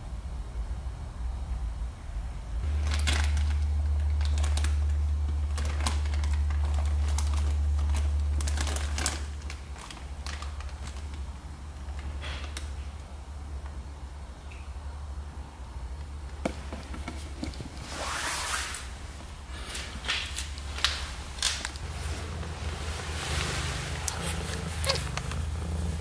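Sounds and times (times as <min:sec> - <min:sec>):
steady low rumble: 0:00.0 - 0:12.2, 0:18.8 - 0:26.0.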